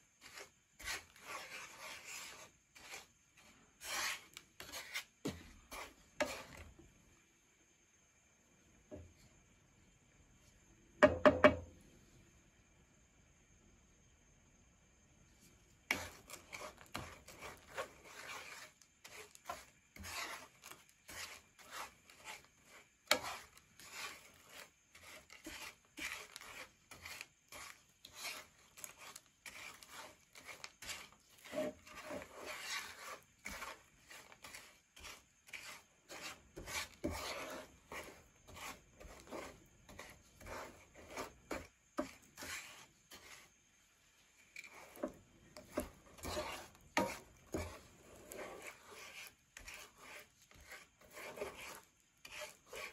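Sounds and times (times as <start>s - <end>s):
wooden spatula scraping sugar in pan: 0.0s - 6.8s, 15.8s - 43.6s, 44.2s - 52.9s.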